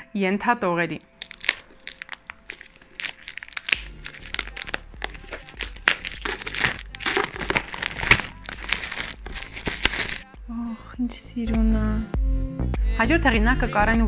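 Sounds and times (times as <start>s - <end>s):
packaging crinkling and tearing: 1.1s - 10.3s.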